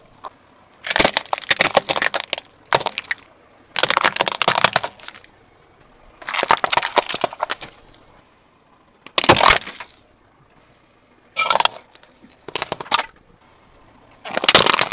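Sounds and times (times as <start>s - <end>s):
tyre crushing objects: 0.8s - 3.2s, 3.8s - 5.3s, 6.2s - 7.9s, 9.1s - 10.0s, 11.4s - 13.2s, 14.2s - 14.9s.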